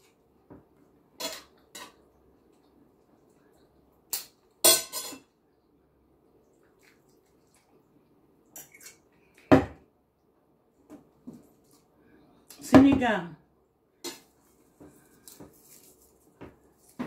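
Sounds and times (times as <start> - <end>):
cutlery clinking on dishes: 1.2 - 2.0, 4.1 - 5.3.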